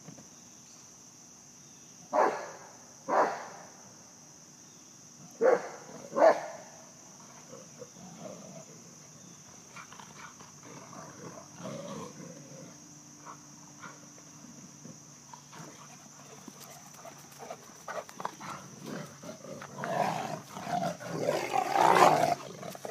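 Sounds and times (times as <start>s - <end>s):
soft irregular dog noises: 5.2s - 22.9s
dogs barking: 5.4s - 6.6s.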